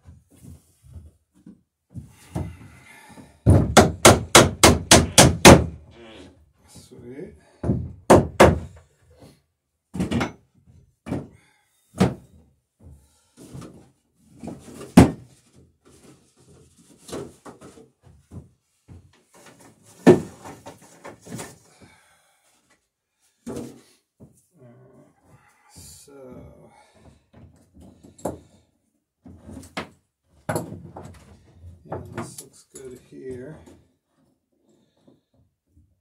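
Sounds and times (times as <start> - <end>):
hammer striking nail into wood: 3.5 - 5.8, 8.1 - 8.7.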